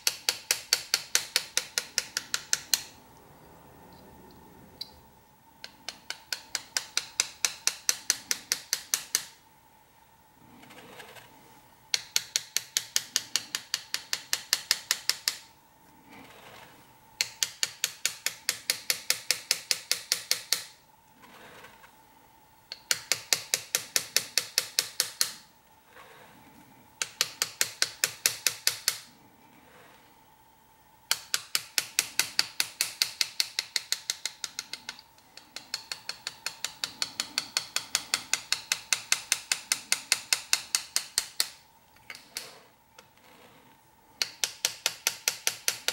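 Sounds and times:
hammer tapping graver on metal: 0.0s - 3.0s, 5.6s - 9.4s, 11.9s - 15.5s, 17.2s - 20.8s, 22.7s - 26.1s, 27.0s - 29.2s, 31.1s - 43.3s, 44.2s - 45.9s.

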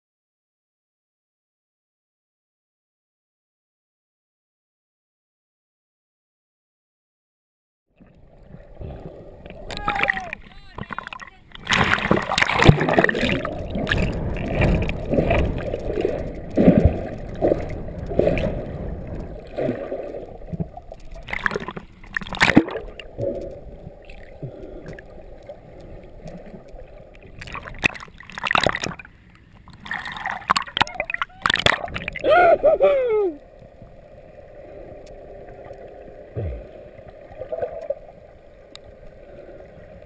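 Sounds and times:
water sloshing and gurgling: 8.0s - 40.0s
muffled underwater sound: 8.1s - 21.6s, 30.2s - 33.8s, 34.6s - 38.1s
sharp water splashes: 9.5s - 18.8s, 21.1s - 23.2s, 27.4s - 29.1s, 29.7s - 32.4s.

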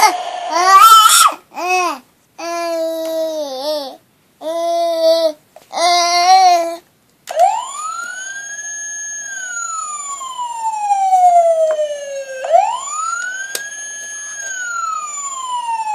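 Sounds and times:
toy siren wailing: 0.5s - 1.3s, 7.3s - 15.9s.

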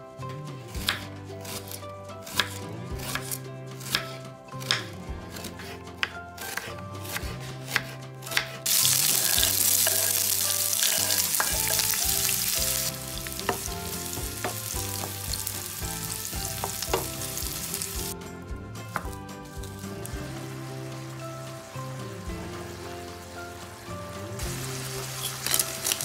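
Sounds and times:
knife chopping on wooden board: 0.8s - 10.2s, 13.4s - 15.4s, 16.4s - 17.4s
onions sizzling in hot oil: 8.7s - 18.2s, 20.0s - 26.0s
wooden spatula tapping: 10.8s - 12.4s, 13.2s - 15.4s, 16.4s - 17.3s.

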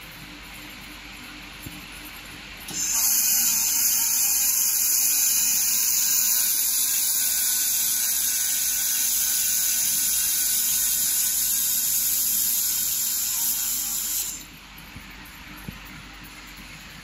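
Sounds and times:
laser welding gun hissing: 2.7s - 14.5s.

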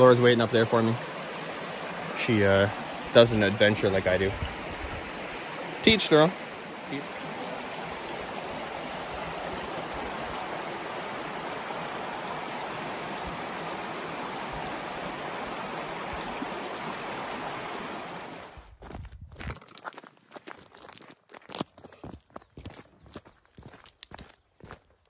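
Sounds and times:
creek water rushing over rocks: 0.0s - 18.6s.

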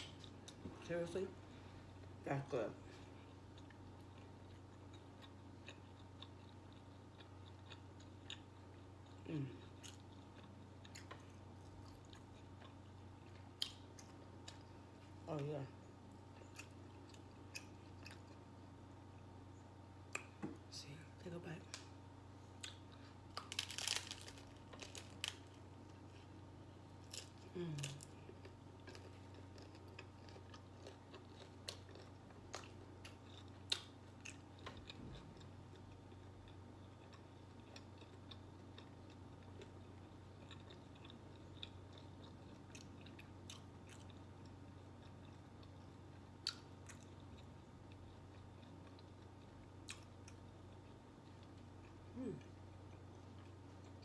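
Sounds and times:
chewing with small crunches: 0.0s - 20.4s, 21.6s - 54.0s
steady low hum: 0.0s - 54.0s
taco shell crunch: 22.6s - 26.1s, 27.0s - 52.0s.

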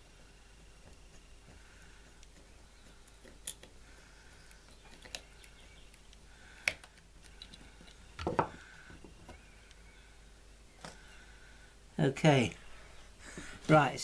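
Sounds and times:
faint plastic clicks: 4.4s - 8.4s.

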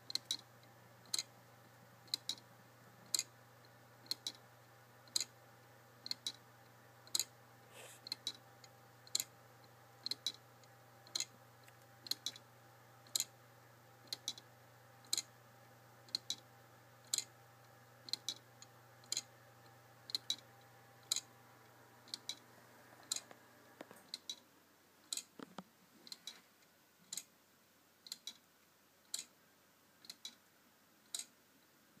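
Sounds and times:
clock ticking: 0.1s - 0.4s, 1.0s - 1.3s, 2.1s - 2.4s, 3.0s - 4.4s, 5.0s - 5.3s, 11.0s - 11.3s, 12.0s - 12.4s, 14.0s - 14.4s, 19.0s - 19.3s, 21.0s - 21.3s, 22.0s - 22.4s, 23.0s - 23.4s, 24.1s - 24.4s, 25.1s - 25.4s, 26.1s - 26.4s, 27.0s - 27.3s, 28.0s - 29.4s, 30.0s - 30.4s, 31.0s - 31.4s.

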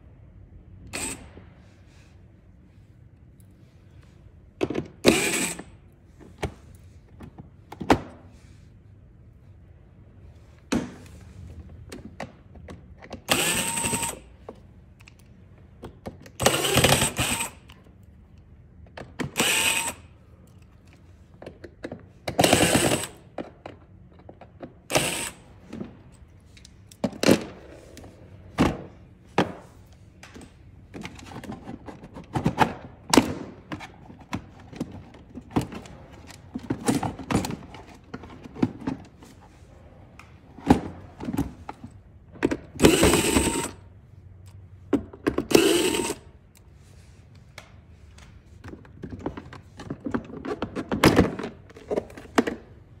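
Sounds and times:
cordless drill bursts: 0.9s - 1.3s, 5.0s - 5.7s, 13.3s - 14.2s, 16.4s - 17.7s, 19.4s - 20.0s, 22.4s - 23.2s, 24.9s - 25.5s, 42.8s - 43.8s, 45.5s - 46.2s
plastic parts clicking and knocking: 30.2s - 39.2s, 48.6s - 52.8s.

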